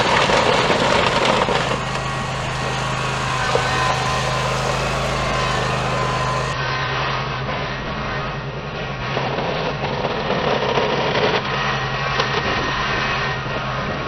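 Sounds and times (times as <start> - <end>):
blade pushing gravel and soil: 0.0 - 6.6
mower engine running: 0.0 - 6.6.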